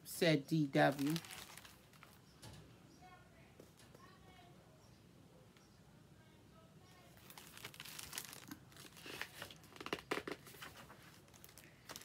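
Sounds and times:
paper pages rustling: 0.9s - 2.2s, 7.2s - 12.0s.

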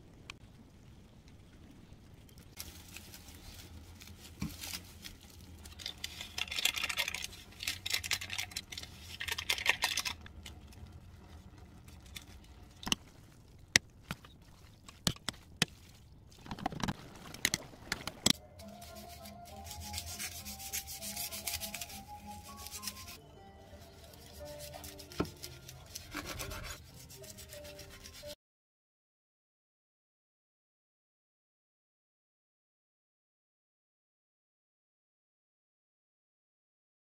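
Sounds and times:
noodles crackling in pot: 2.1s - 28.4s
stirring noodles: 2.6s - 28.4s.

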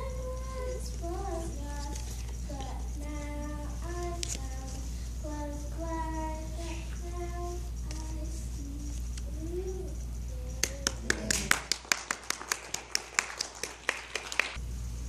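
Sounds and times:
people clapping: 10.6s - 14.6s.

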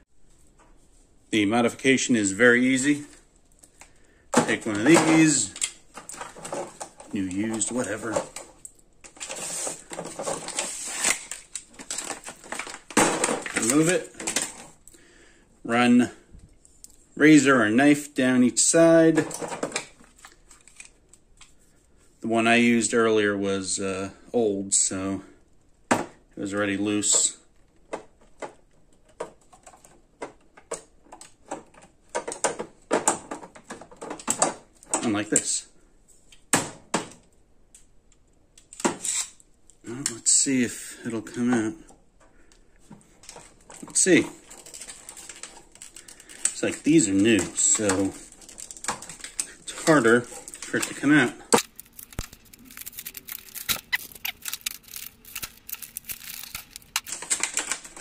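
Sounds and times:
rustling and scraping: 0.2s - 14.8s, 41.0s - 58.0s.

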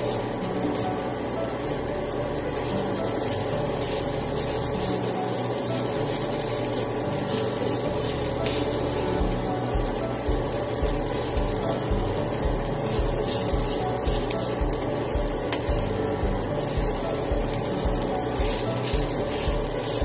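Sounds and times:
fried rice sizzling in a pan: 0.0s - 20.0s
spatula scraping: 2.6s - 10.3s, 12.7s - 20.0s.

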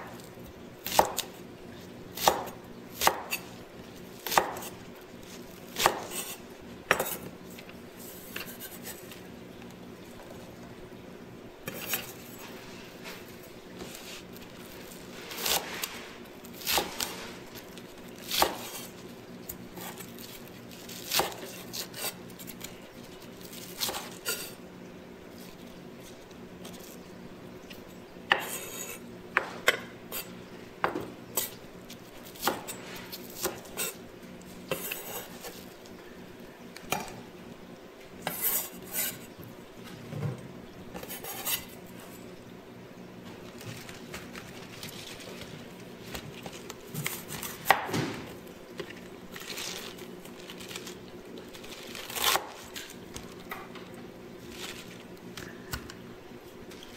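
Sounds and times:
knife chopping on wooden board: 0.8s - 1.3s, 2.2s - 3.4s, 4.2s - 4.7s, 5.8s - 6.3s, 47.0s - 48.2s.

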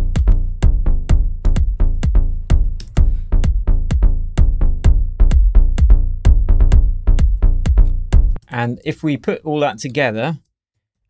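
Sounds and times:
distorted bassline: 0.0s - 8.4s
kick drum: 0.0s - 8.4s.

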